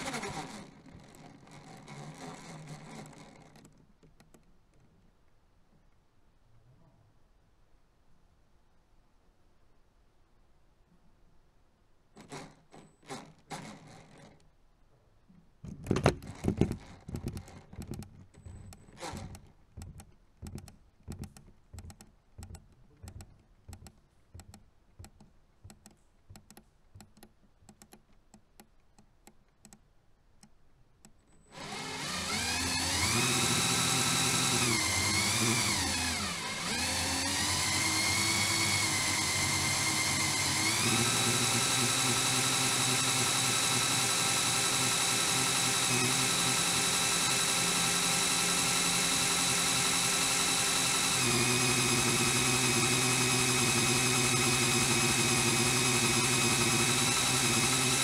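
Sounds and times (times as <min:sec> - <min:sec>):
toy motors and gears whining: 0:00.0 - 0:03.7, 0:12.2 - 0:14.4, 0:16.1 - 0:22.0, 0:31.4 - 0:58.0
plastic clicks and knocks: 0:15.6 - 0:29.8.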